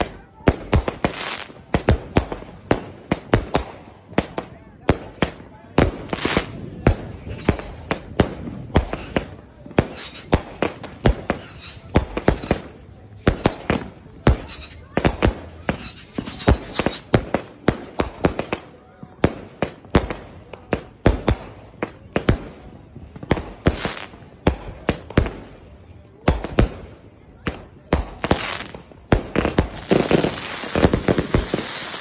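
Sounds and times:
fireworks bangs: 0:00.0 - 0:32.0
high firework whistle: 0:07.1 - 0:17.4.

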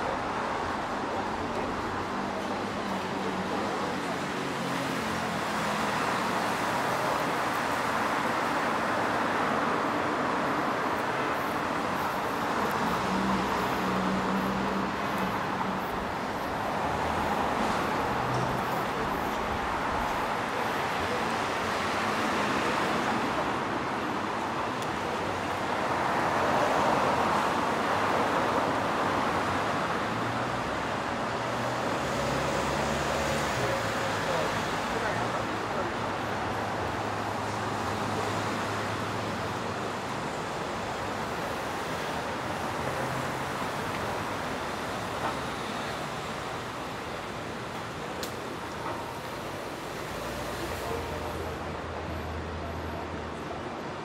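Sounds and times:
bus passing: 0:00.0 - 0:54.0
cars passing: 0:00.0 - 0:54.0.

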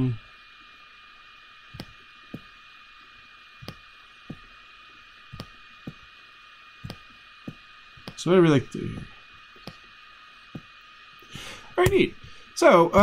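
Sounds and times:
faint high steady tones: 0:00.0 - 0:13.0
microphone hiss: 0:00.0 - 0:13.0
computer mouse clicks: 0:01.7 - 0:02.5, 0:03.6 - 0:04.5, 0:05.3 - 0:06.1, 0:06.8 - 0:08.2, 0:08.9 - 0:09.8.

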